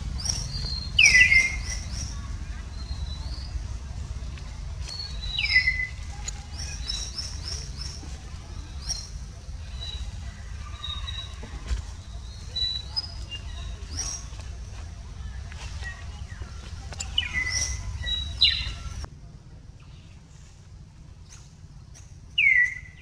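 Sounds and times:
low falling bird call: 0:00.0 - 0:03.6
birds chirping: 0:00.0 - 0:19.1, 0:19.7 - 0:23.0
steady low rumble: 0:00.0 - 0:23.0.

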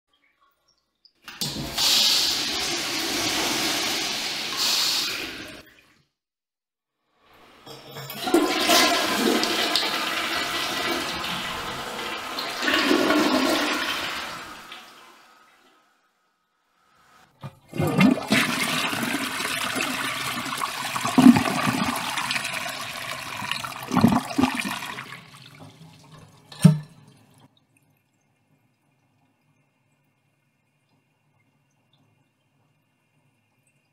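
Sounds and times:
urinal flushing: 0:01.3 - 0:06.0, 0:07.4 - 0:15.9, 0:17.0 - 0:27.5.

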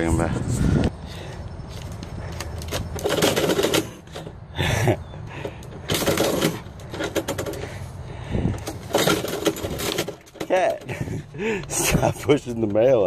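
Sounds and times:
clatter bursts: 0:02.5 - 0:04.4, 0:05.4 - 0:07.8, 0:08.5 - 0:11.2
metal mail slot clacking: 0:02.5 - 0:04.4, 0:05.7 - 0:07.8, 0:08.6 - 0:11.0.

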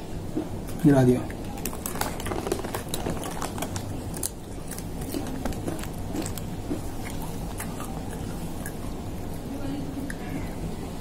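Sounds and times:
cat crunching crisp chips: 0:01.6 - 0:09.1.

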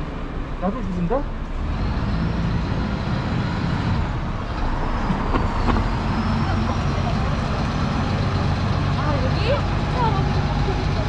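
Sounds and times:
road noise: 0:00.0 - 0:11.0
vehicle engine running: 0:00.0 - 0:11.0.

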